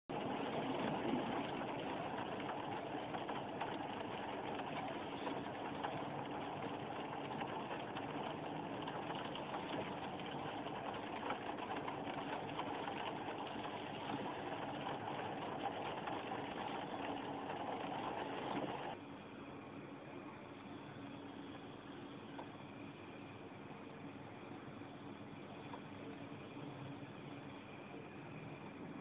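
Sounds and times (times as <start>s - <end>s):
heavy rain: 0.1s - 19.0s.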